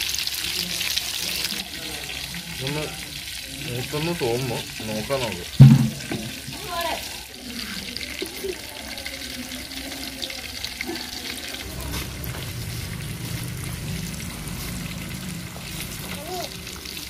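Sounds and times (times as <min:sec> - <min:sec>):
fish sizzling in hot oil: 0:00.0 - 0:17.0
oil crackles and pops: 0:10.8 - 0:17.0
low rumble: 0:11.6 - 0:16.8.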